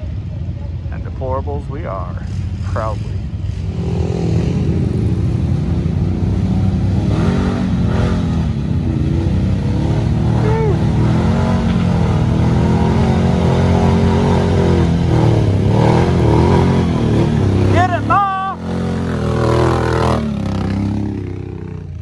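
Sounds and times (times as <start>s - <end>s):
quad engine running under load: 0.0s - 22.0s.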